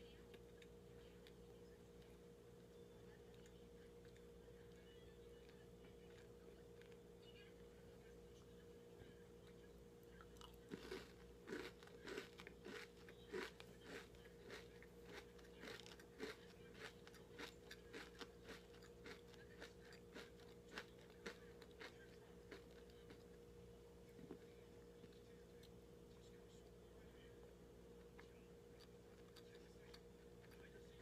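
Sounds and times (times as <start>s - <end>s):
chewing crisp crunches: 10.2s - 23.3s, 28.0s - 31.0s.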